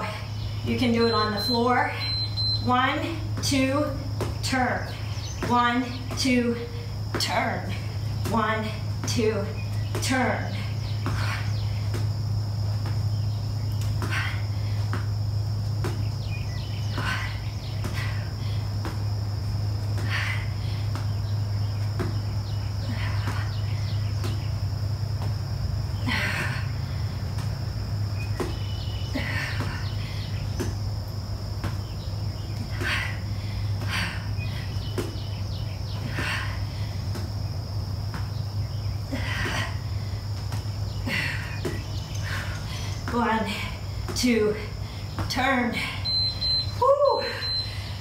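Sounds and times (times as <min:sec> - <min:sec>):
high insect whine: 0:00.0 - 0:48.0
steady low hum: 0:00.0 - 0:48.0
shoes knocking on an exercise mat: 0:03.2 - 0:18.2, 0:20.9 - 0:24.5, 0:28.2 - 0:30.8, 0:37.1 - 0:39.6, 0:40.4 - 0:42.4, 0:43.0 - 0:45.6
person breathing: 0:32.8 - 0:34.8.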